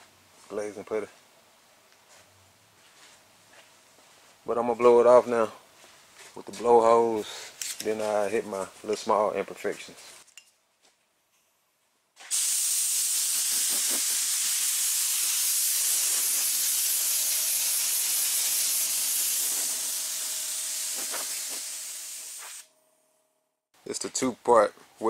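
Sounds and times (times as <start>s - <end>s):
air blow gun hissing: 12.3s - 22.7s.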